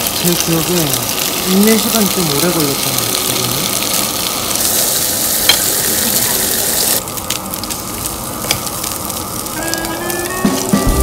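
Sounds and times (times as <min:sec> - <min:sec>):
crackling pops: 0:00.0 - 0:11.0
fish sizzling on grill plate: 0:00.0 - 0:11.0.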